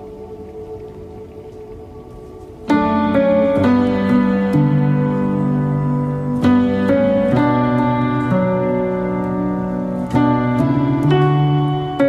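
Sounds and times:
calm instrumental music: 0.0 - 12.0.

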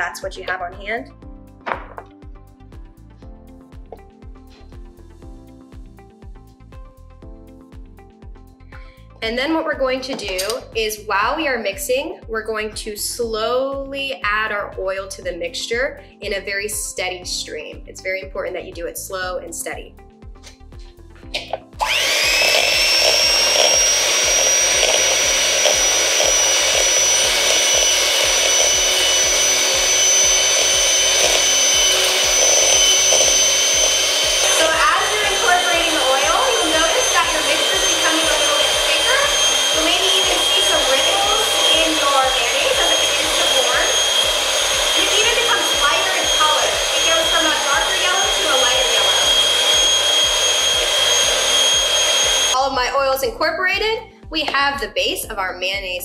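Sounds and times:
electric hand mixer whine: 21.6 - 52.6.

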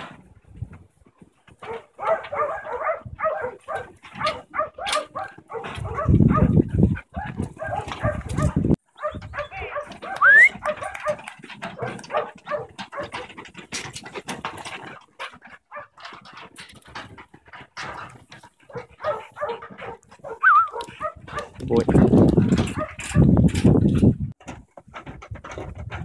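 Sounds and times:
dog barking: 1.6 - 6.6, 7.2 - 11.2, 11.8 - 13.2, 18.7 - 21.7, 22.7 - 23.3.

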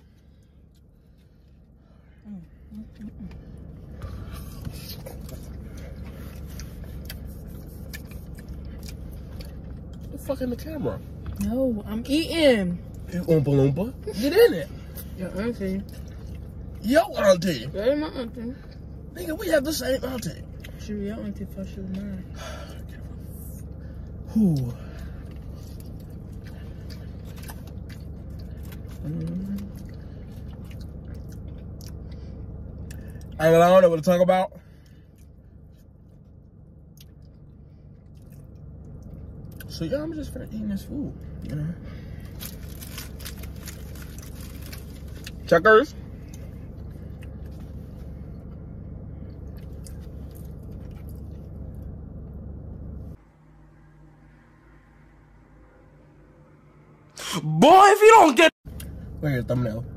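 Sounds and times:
low rumble in car cabin: 0.0 - 59.9
person chewing: 2.9 - 10.1, 24.1 - 33.4
person eating fries: 4.2 - 10.0, 42.2 - 45.5.

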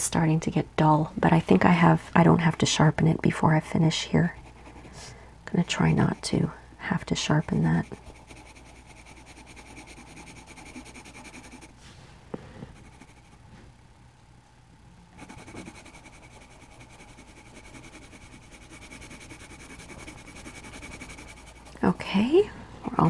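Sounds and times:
pencil scratching on paper: 3.8 - 11.8, 12.7 - 13.4, 15.2 - 21.8.

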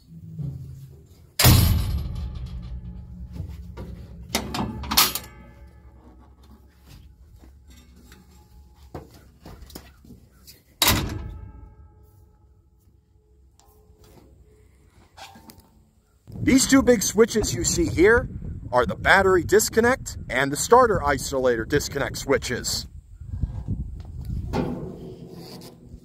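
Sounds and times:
light metallic knocks and clanks: 0.4 - 12.4
heavy metal door slamming: 1.4 - 5.8, 10.8 - 11.9.

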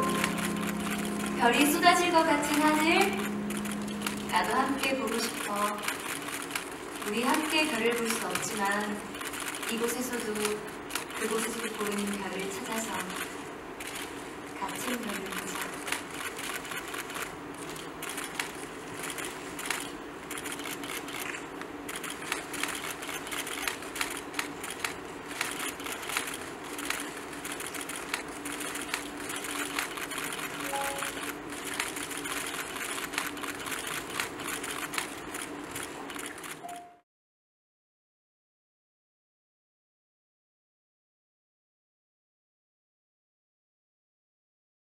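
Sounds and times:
soft background music: 0.0 - 5.9, 30.7 - 31.3
camera shutters clicking: 14.8 - 36.6.

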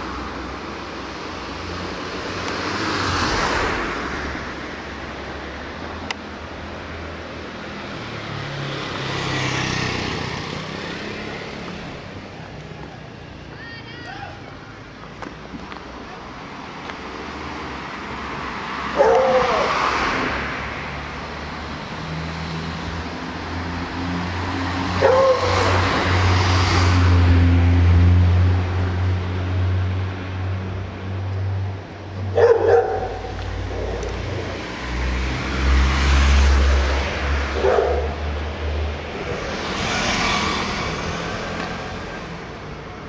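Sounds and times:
dog barking: 18.9 - 19.7, 25.0 - 25.8, 32.3 - 34.1, 37.6 - 38.2.

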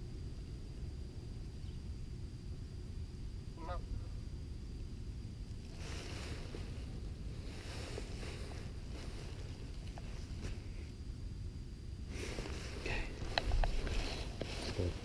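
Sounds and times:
low outdoor rumble: 0.0 - 15.0
brushing rustle: 5.7 - 10.9, 12.1 - 15.0.

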